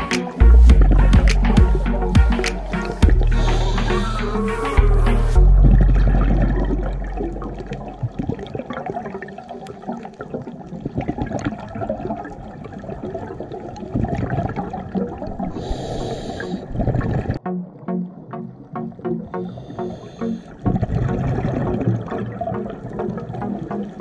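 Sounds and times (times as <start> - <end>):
music: 0.0 - 8.0, 17.4 - 24.0
diver's regulator bubbling: 0.7 - 24.0
breath hissing through regulator: 1.6 - 5.4, 15.5 - 16.8, 19.3 - 20.6.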